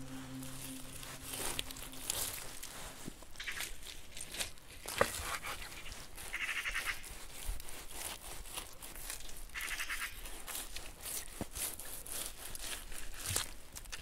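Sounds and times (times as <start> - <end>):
knife cutting and scraping meat: 0.3 - 14.0
knife rasping on bone: 3.5 - 14.0.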